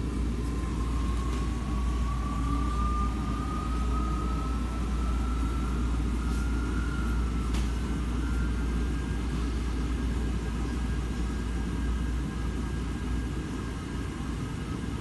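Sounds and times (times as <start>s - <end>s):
washing machine motor whine: 0.0s - 15.0s.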